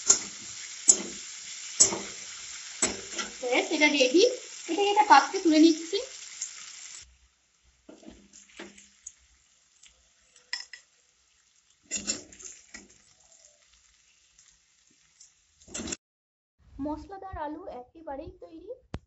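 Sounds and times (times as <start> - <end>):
metal spatula scraping a pan: 0.0 - 3.9, 7.9 - 9.2, 11.7 - 16.0
hot oil sizzling: 0.0 - 16.0.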